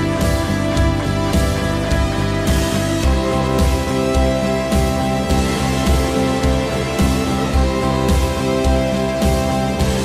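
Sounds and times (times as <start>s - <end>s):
background music with steady beat: 0.0s - 10.0s.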